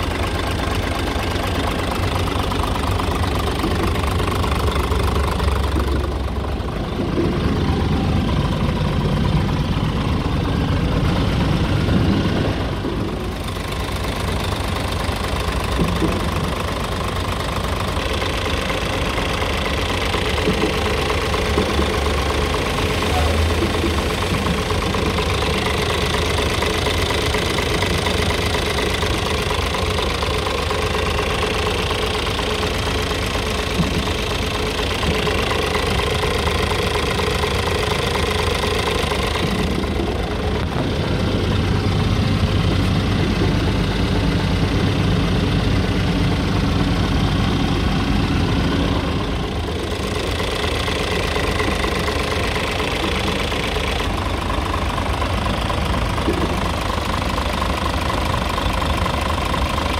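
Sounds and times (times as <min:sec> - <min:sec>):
diesel engine idling: 0:00.0 - 0:59.9.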